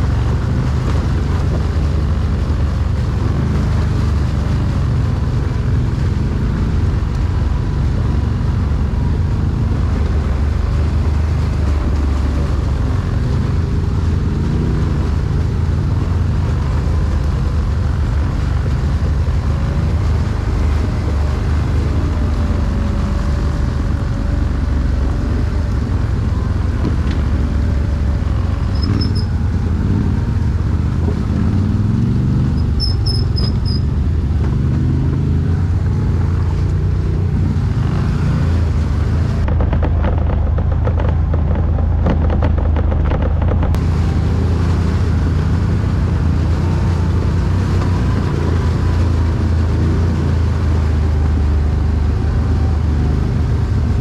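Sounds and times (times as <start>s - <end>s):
atv engine running: 0.0s - 54.0s.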